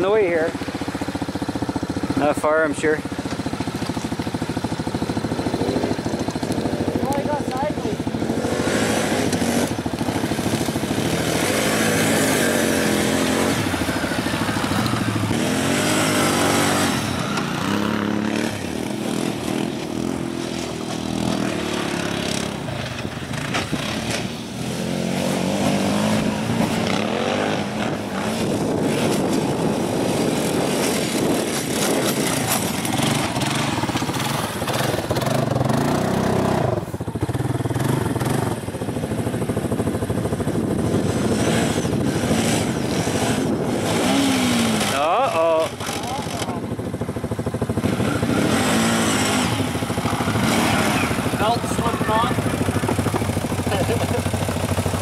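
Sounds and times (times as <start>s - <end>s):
atv engines revving: 0.0s - 55.0s.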